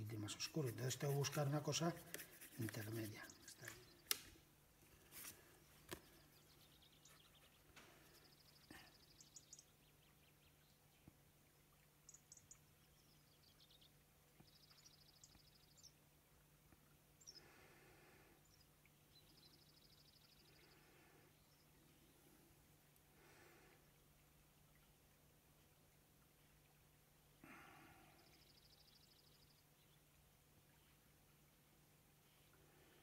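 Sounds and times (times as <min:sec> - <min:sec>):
faint bird chirps and trills: 0:04.9 - 0:33.0.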